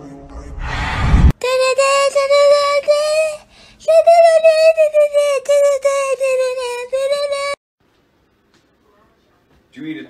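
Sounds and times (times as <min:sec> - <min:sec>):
high-pitched singing voice: 0:01.4 - 0:07.6.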